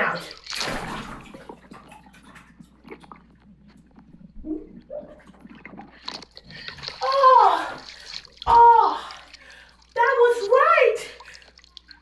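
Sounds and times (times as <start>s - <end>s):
person's voice: 0.0s - 0.4s, 7.0s - 7.9s, 8.5s - 9.2s, 10.0s - 11.2s
water splashing underwater: 0.0s - 10.0s
faint bubbling crackles: 0.0s - 12.0s.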